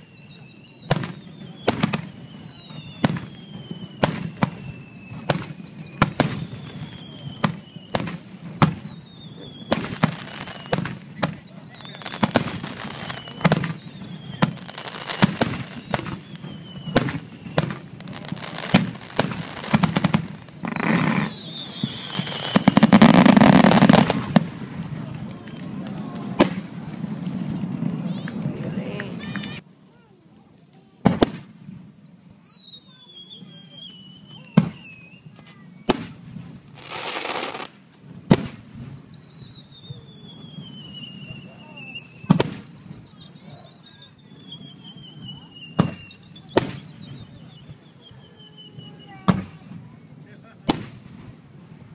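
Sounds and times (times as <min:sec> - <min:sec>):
falling firework whistles: 0:00.0 - 0:29.6, 0:31.0 - 0:51.9
firework shells bursting: 0:12.1 - 0:29.6
rapid crackling pops: 0:12.1 - 0:29.6.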